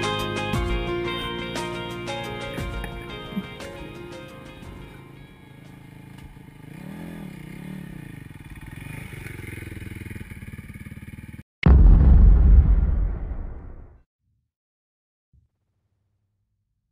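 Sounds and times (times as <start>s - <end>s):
background music: 0.0s - 5.4s
motorcycle engine revving: 4.9s - 11.4s
loud sudden boom: 11.6s - 14.0s.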